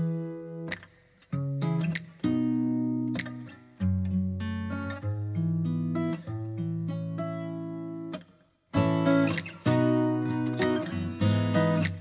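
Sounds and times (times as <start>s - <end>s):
strummed acoustic guitar chords: 8.8s - 12.0s.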